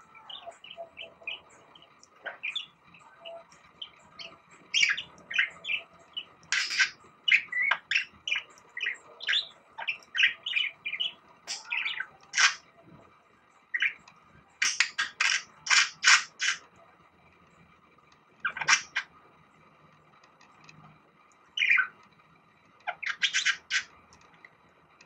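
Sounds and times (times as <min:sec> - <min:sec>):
budgerigar chirping and warbling: 0:02.2 - 0:05.9, 0:06.5 - 0:12.6, 0:14.6 - 0:16.6, 0:18.4 - 0:19.1, 0:21.6 - 0:21.9, 0:22.9 - 0:23.9.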